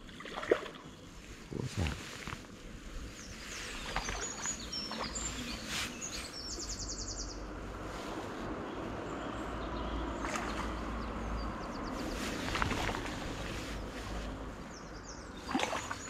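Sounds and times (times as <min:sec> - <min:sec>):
low city rumble: 0:00.0 - 0:16.0
small bird chirping: 0:03.1 - 0:07.5.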